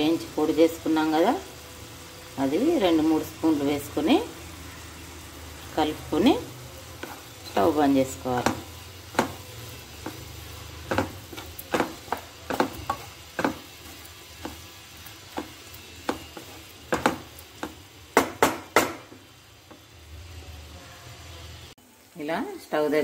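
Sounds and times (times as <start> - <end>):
faint sizzle: 0.0 - 23.0
spatula scraping a pan: 8.4 - 17.8.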